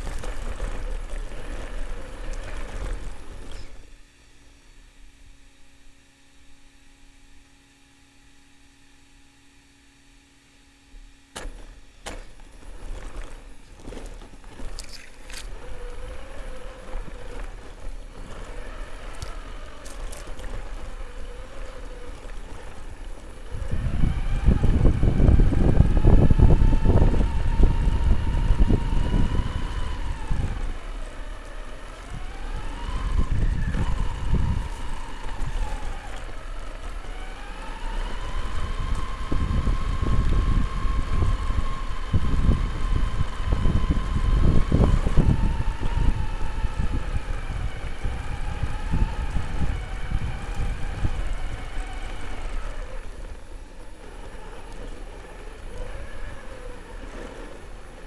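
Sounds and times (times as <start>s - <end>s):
electric motor whining: 0.0s - 4.4s, 10.1s - 58.0s
rumble of wind and rough ground: 0.0s - 5.9s, 10.9s - 58.0s.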